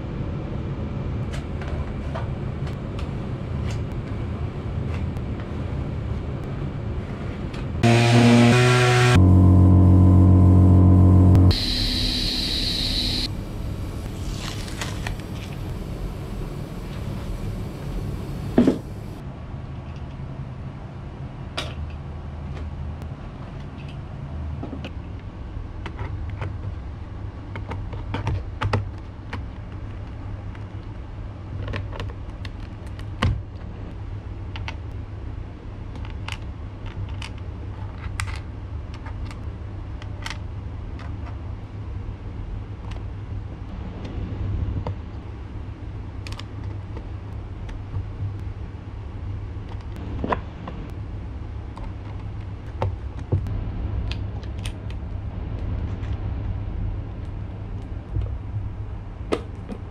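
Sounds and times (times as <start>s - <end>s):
steady low hum: 2.1s - 19.2s.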